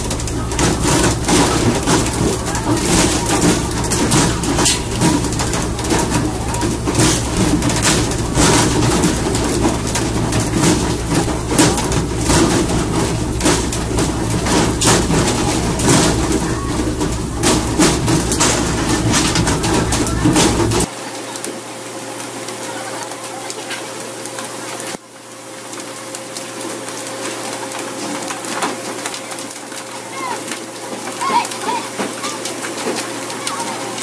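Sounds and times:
boat engine droning: 0:00.0 - 0:20.9
rushing water: 0:00.0 - 0:34.0.

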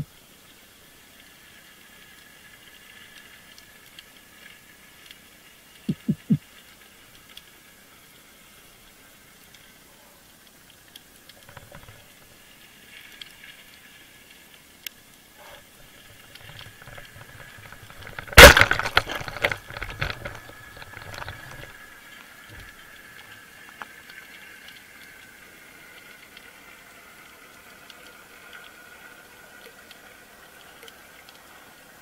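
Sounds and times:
speargun firing underwater: 0:18.3 - 0:19.2.

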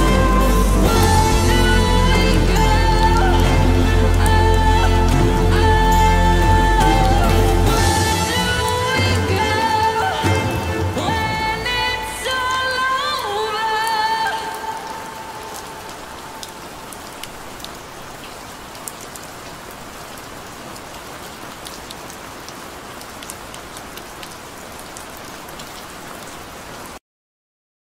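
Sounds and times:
song ending: 0:00.0 - 0:12.9
steady rain: 0:00.0 - 0:27.0.

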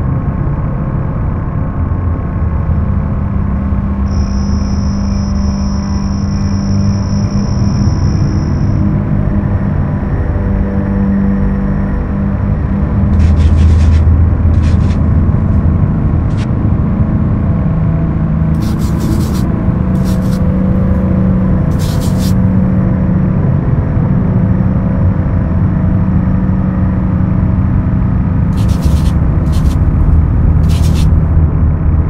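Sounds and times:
droning music: 0:01.4 - 0:14.6
bursts of hiss: 0:18.6 - 0:20.4, 0:21.7 - 0:22.4, 0:28.6 - 0:29.8, 0:30.6 - 0:31.2.

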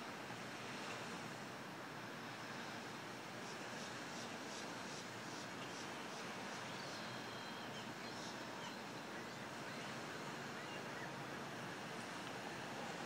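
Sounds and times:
steady outdoor hiss: 0:00.0 - 0:13.0
faint high chirps: 0:05.4 - 0:11.2.

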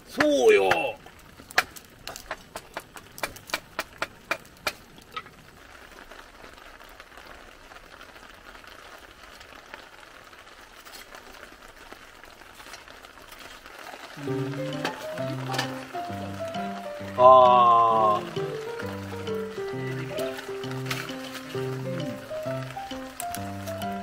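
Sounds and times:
charcoal popping and crackling: 0:00.0 - 0:24.0
fire hissing: 0:08.4 - 0:24.0.

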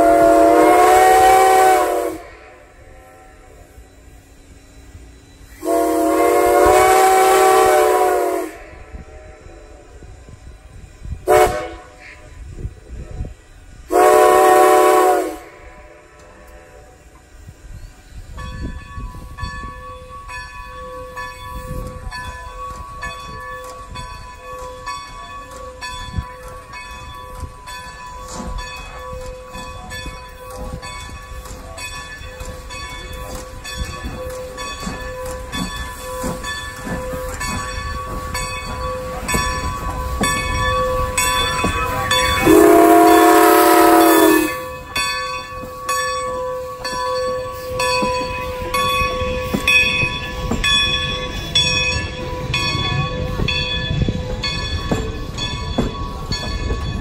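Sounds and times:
steam whistle blast: 0:00.0 - 0:03.6, 0:05.5 - 0:09.4, 0:11.2 - 0:12.3, 0:13.9 - 0:16.9, 0:41.8 - 0:45.0
steam locomotive beats: 0:00.0 - 0:57.0.

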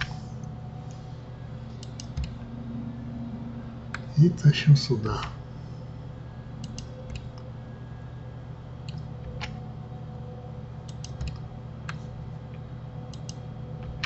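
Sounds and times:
steady low hum: 0:00.0 - 0:14.0
keyboard and mouse clicks: 0:01.8 - 0:02.4, 0:06.6 - 0:07.4, 0:10.9 - 0:12.0, 0:13.1 - 0:14.0.

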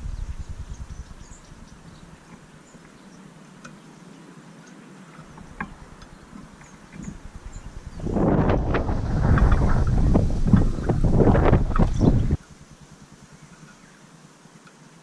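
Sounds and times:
wind rumbling on microphone: 0:00.0 - 0:02.6, 0:05.2 - 0:12.9
faint high bird chirps: 0:00.0 - 0:04.8.

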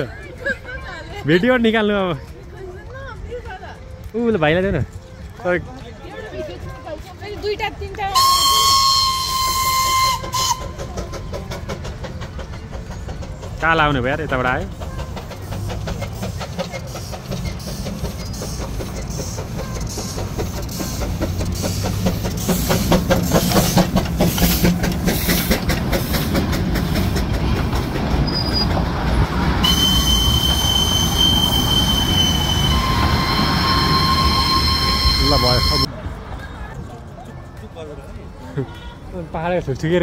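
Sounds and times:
steam locomotive chuffing: 0:08.1 - 0:35.9
high-pitched squeal: 0:29.6 - 0:35.9.

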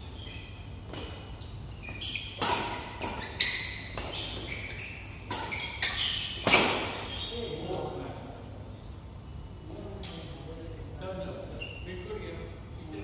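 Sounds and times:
shoes squeaking on court floor: 0:00.0 - 0:07.9, 0:11.5 - 0:12.1
rackets hitting shuttlecock: 0:02.0 - 0:04.6, 0:05.2 - 0:07.1.

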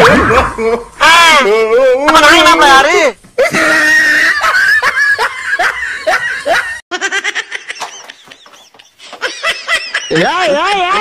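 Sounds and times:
person laughing: 0:03.4 - 0:11.0.

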